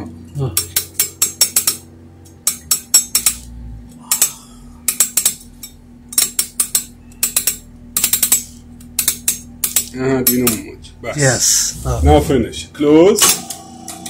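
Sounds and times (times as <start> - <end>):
steady hum: 0.0 - 14.0
sharp ratcheting clicks: 6.1 - 10.6.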